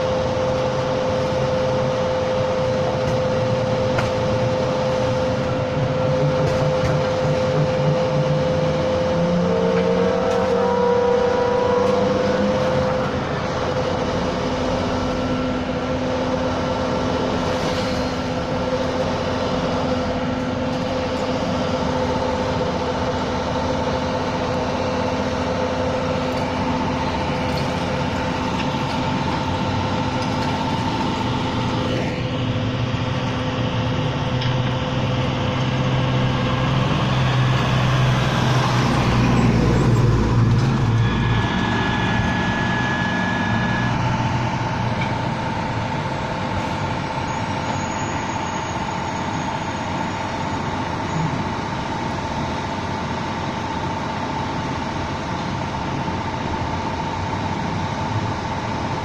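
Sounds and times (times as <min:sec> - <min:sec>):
garbage truck engine whining drone: 0:00.0 - 0:59.0
heavy vehicle rumbling past: 0:02.9 - 0:54.4.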